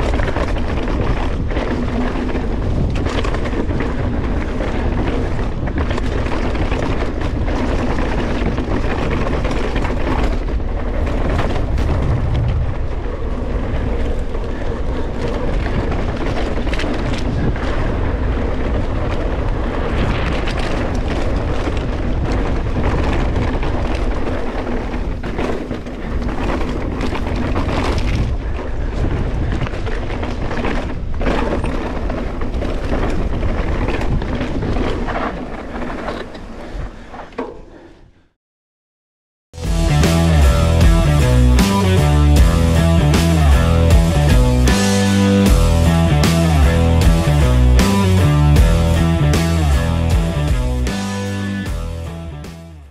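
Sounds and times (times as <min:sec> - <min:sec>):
wind rumble on microphone: 0:00.0 - 0:37.1
bike knocks and rattles: 0:00.0 - 0:37.9.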